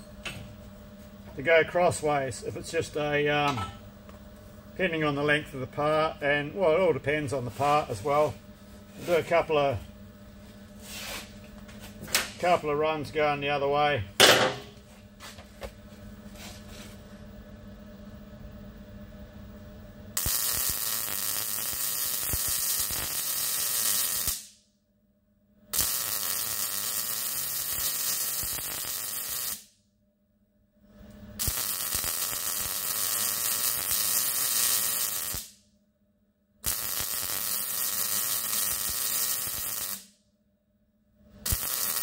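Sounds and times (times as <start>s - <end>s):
welding arc crackling hiss: 20.2s - 24.6s, 25.7s - 29.7s, 31.4s - 35.6s, 36.6s - 40.1s, 41.4s - 42.0s.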